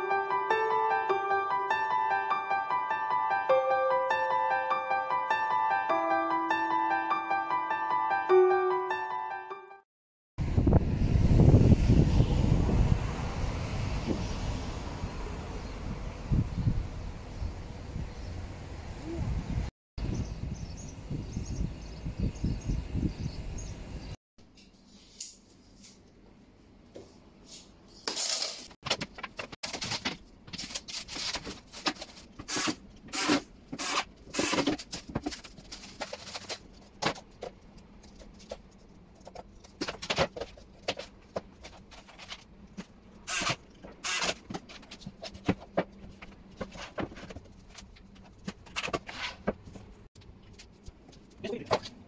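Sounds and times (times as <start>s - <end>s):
plastic packaging rustling: 28.2s - 32.5s, 34.3s - 37.4s.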